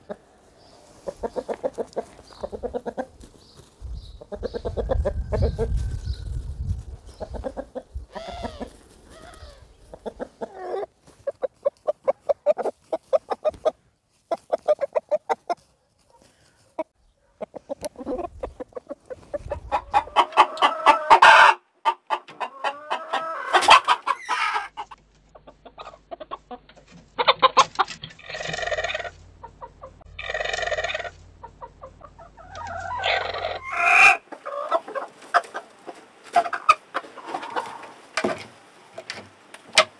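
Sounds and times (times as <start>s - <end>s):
chickens clucking and calling: 0.0s - 15.8s, 16.6s - 39.9s.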